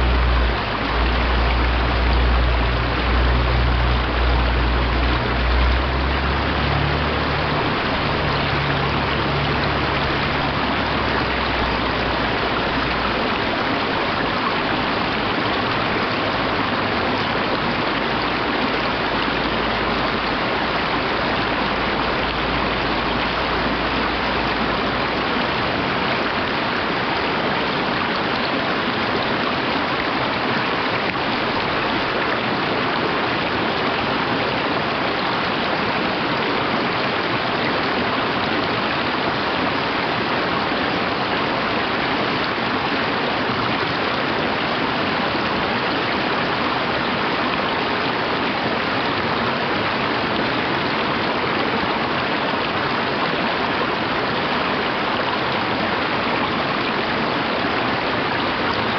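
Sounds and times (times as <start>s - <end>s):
stream running over rocks: 0.0s - 58.9s.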